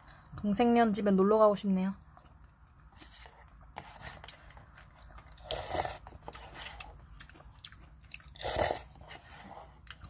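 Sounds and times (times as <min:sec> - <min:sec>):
person chewing noodles: 0:02.2 - 0:10.0
loud eating noise: 0:04.1 - 0:10.0.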